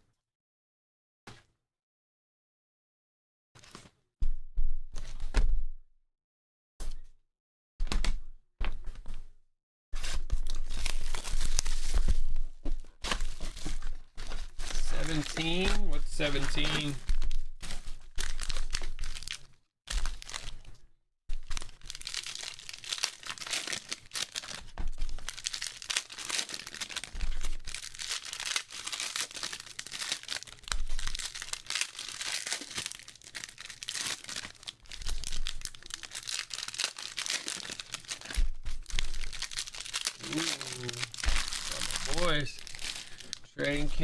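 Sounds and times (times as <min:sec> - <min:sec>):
foil wrappers crinkling: 0:10.1 - 0:12.4, 0:13.0 - 0:20.7, 0:21.3 - 0:44.0.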